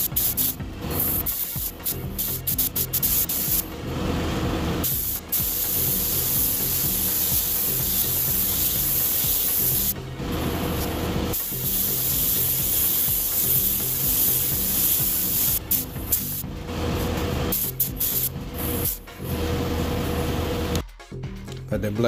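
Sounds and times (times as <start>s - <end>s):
paint spray gun hissing: 0.0s - 3.6s, 4.8s - 10.0s, 11.4s - 16.4s, 17.5s - 19.0s.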